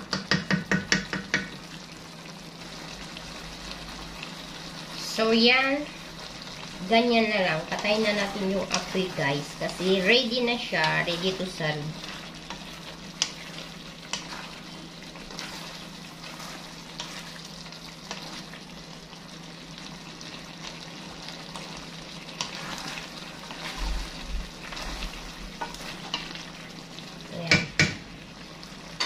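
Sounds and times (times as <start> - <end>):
food sizzling in a wok: 0.0 - 29.0
spatula clicking against pan: 0.1 - 1.5.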